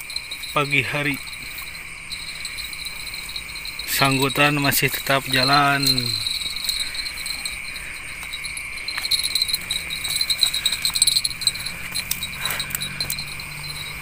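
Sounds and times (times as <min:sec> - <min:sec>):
night insects chirring: 0:00.0 - 0:14.0.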